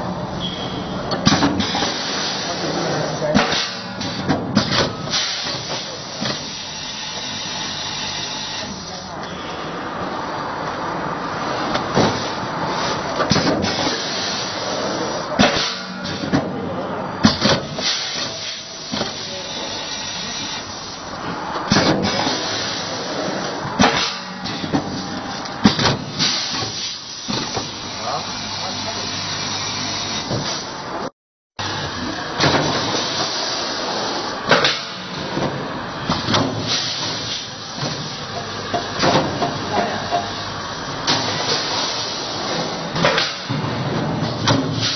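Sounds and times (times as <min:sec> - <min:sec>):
bagging machine running: 0:00.0 - 0:09.2, 0:10.9 - 0:44.9
pneumatic cylinder clacks: 0:01.1 - 0:02.4, 0:15.4 - 0:16.5, 0:23.8 - 0:27.7, 0:34.5 - 0:40.4, 0:43.0 - 0:44.9
packaging machine running: 0:01.2 - 0:09.1.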